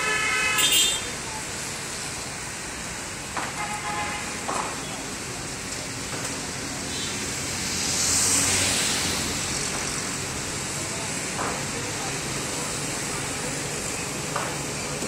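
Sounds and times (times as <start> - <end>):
roadside traffic noise: 0.0 - 15.0
vehicle passing by: 7.5 - 11.0.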